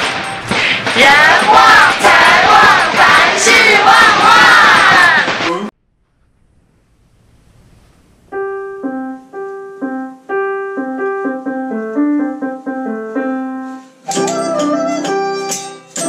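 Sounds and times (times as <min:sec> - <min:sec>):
music with percussive hits: 0:00.0 - 0:05.7, 0:14.1 - 0:16.0
digital piano melody: 0:08.3 - 0:16.0.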